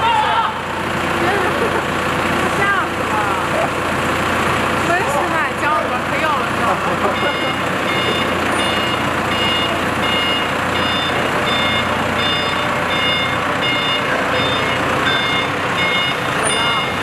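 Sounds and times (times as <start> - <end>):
forklift engine running: 0.0 - 17.0
reversing alarm beeping: 7.0 - 17.0.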